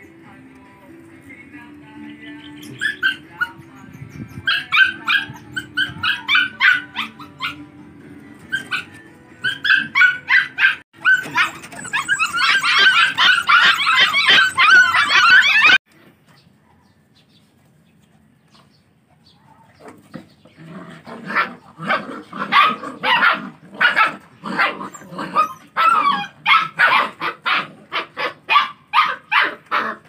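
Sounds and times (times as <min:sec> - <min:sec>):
puppies yipping: 0:02.5 - 0:07.7, 0:08.4 - 0:15.8, 0:21.3 - 0:30.0.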